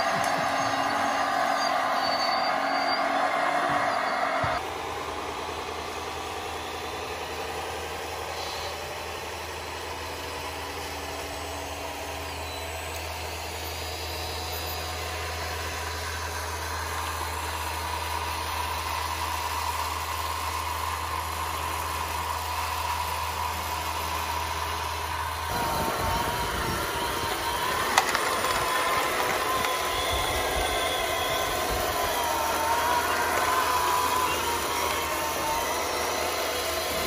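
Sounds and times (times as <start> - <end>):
model engine idling hum: 0.0 - 37.0
higher whine: 22.4 - 37.0.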